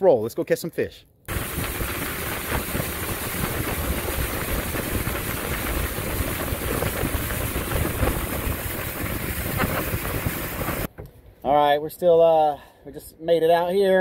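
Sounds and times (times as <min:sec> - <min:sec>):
water rushing along hull: 0:01.3 - 0:10.9
wind buffeting microphone: 0:01.3 - 0:10.9
motorboat engine rumble: 0:01.3 - 0:11.1.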